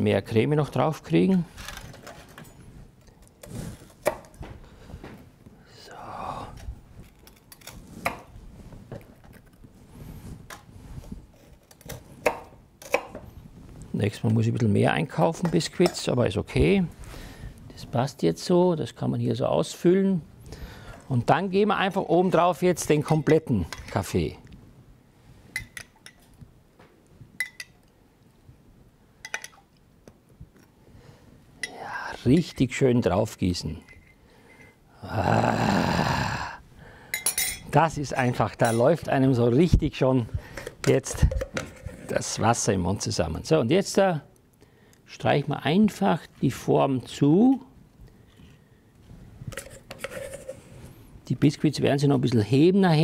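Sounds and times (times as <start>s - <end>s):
metal spoon clinking on ceramic: 27.4s - 27.8s, 37.2s - 37.7s.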